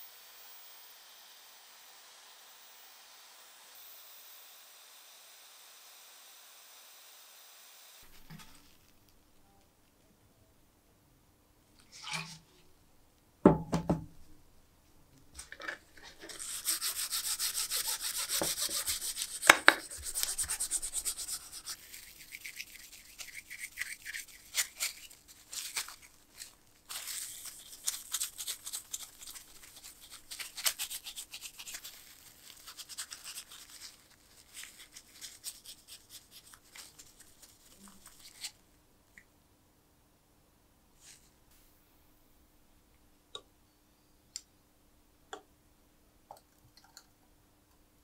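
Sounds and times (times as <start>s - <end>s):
parts knocking on wooden bench: 13.5s - 14.2s
cloth wiping metal parts: 15.6s - 26.5s.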